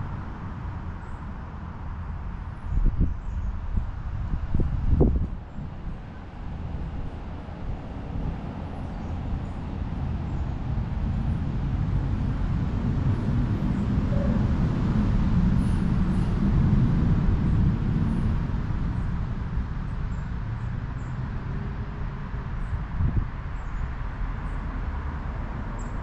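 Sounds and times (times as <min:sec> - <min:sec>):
wind gusting: 0:03.8 - 0:23.4.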